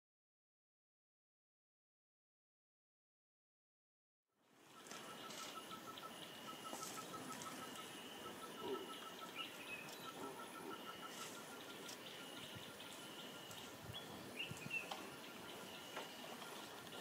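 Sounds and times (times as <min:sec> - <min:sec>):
birds calling: 0:04.5 - 0:17.0
insects calling: 0:04.5 - 0:17.0
fast pulsing call: 0:04.8 - 0:13.8.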